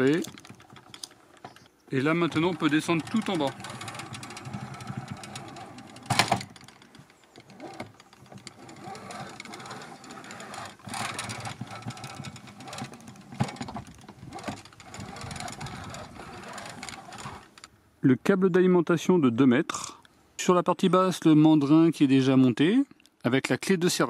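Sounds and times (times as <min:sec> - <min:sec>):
metal rattling and clicking: 0:00.0 - 0:17.7.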